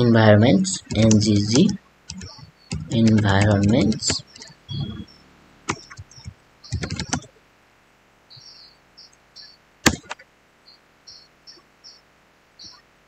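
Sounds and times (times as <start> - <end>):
keyboard clicks: 0.6 - 5.1, 5.7 - 7.3
faint high-pitched chirps: 3.9 - 7.2, 8.3 - 9.6, 10.6 - 13.0.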